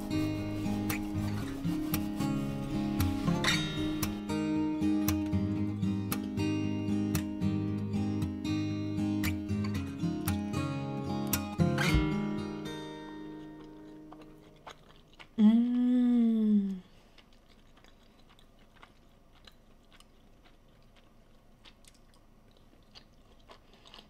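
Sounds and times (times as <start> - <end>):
acoustic guitar notes: 0.0 - 14.7
quiet chewing: 13.4 - 15.9, 16.6 - 24.0
person humming mmm: 15.4 - 17.0.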